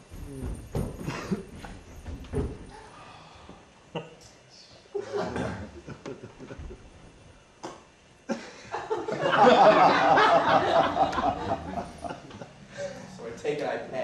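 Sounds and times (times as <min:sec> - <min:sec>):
audience laughing: 0:08.7 - 0:12.8.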